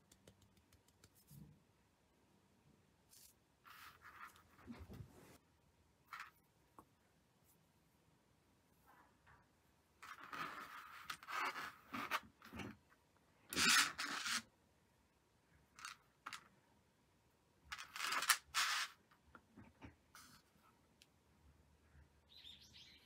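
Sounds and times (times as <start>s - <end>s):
lace rustling and scraping on table: 3.1s - 5.4s, 6.1s - 6.4s, 10.0s - 14.5s, 17.7s - 20.7s.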